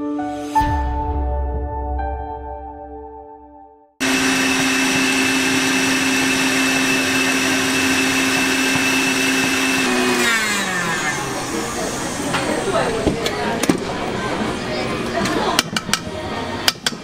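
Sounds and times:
stand mixer motor whine: 4.0 - 12.7.

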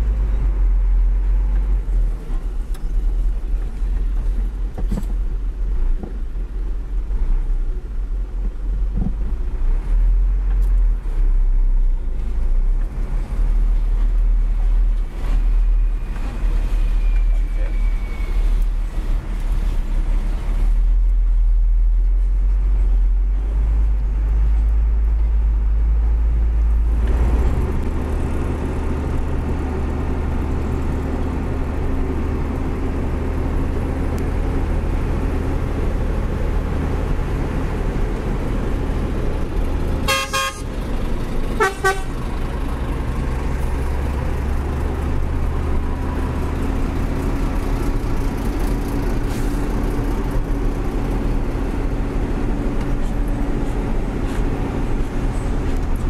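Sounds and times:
diesel truck engine drone: 0.0 - 56.0
truck horn toots: 40.0 - 40.8, 41.6 - 42.2.

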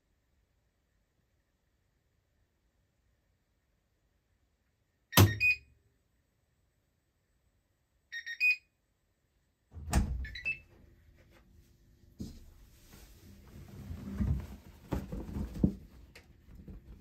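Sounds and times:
washing machine door clunk: 9.8 - 10.5.

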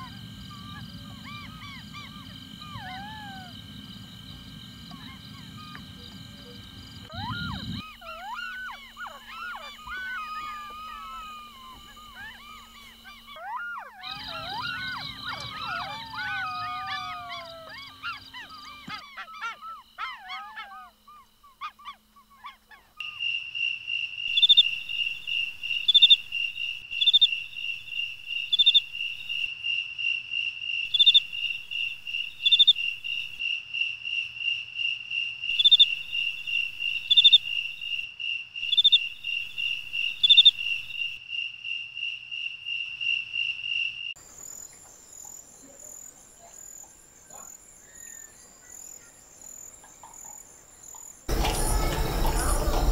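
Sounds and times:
jackals howling: 0.0 - 23.0, 47.3 - 52.9
cricket trilling: 0.0 - 52.9.

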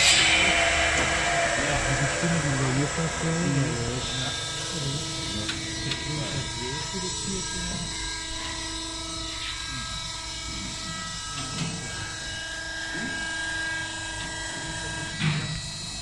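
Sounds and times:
faint voices: 0.0 - 8.0
machine hum and whine: 0.0 - 16.0.

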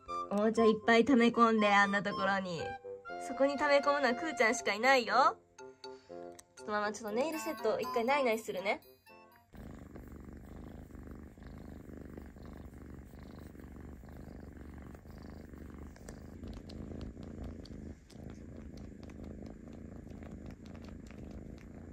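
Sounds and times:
kitten purring: 9.4 - 21.9
faint clicks: 14.9 - 21.9.

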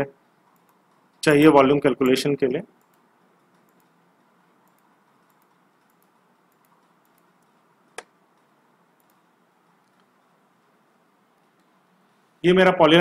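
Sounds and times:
computer mouse clicks: 0.4 - 1.2, 2.8 - 10.2.

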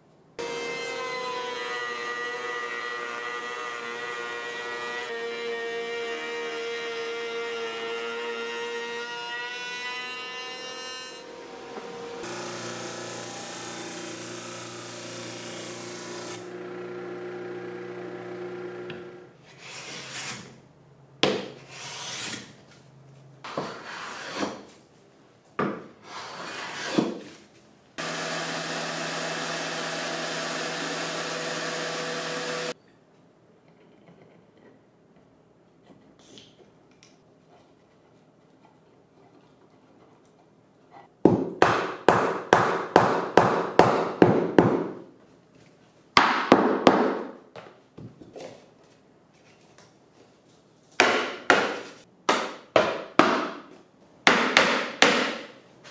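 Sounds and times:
disc sander grinding wood: 10.1 - 19.3, 28.0 - 32.8
orbital sander running: 11.2 - 19.2, 28.0 - 32.8.

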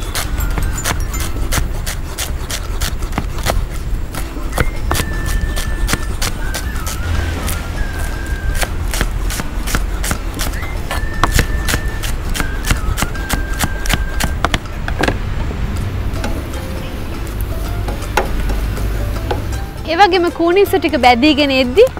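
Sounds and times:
knife chopping on cutting board: 0.0 - 7.5, 8.5 - 15.2.

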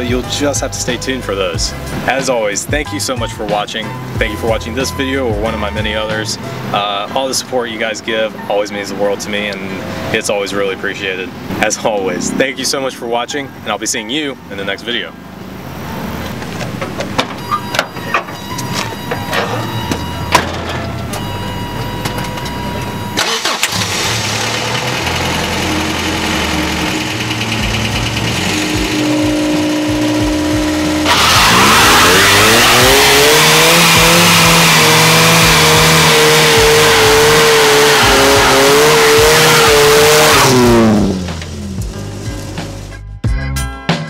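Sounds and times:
car engine revving: 15.3 - 43.0
tyre squeal: 17.4 - 23.8, 30.7 - 40.6.

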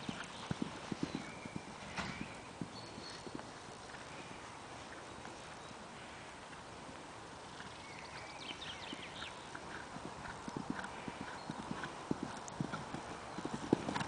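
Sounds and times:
horse hoofbeats on sand: 0.0 - 4.1, 8.7 - 14.0.

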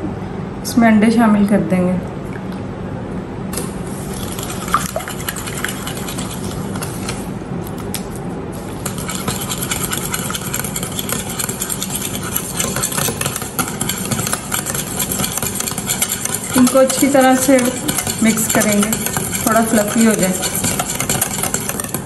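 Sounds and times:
steady low hum: 0.0 - 22.0
whisk clattering against glass bowl: 4.2 - 6.9, 8.8 - 22.0.

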